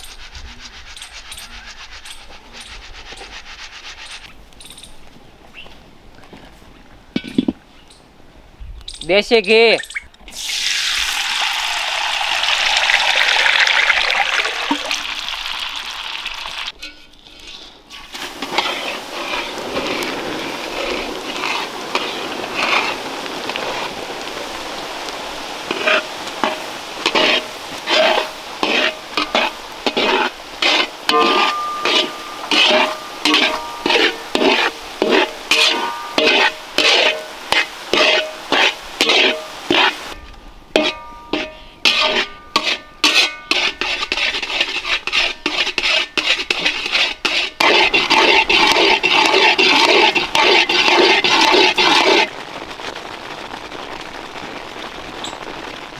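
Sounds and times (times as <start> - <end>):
spatula scraping metal pan: 0.0 - 4.3, 16.7 - 23.9, 25.6 - 52.3
faint sizzle: 10.4 - 55.9.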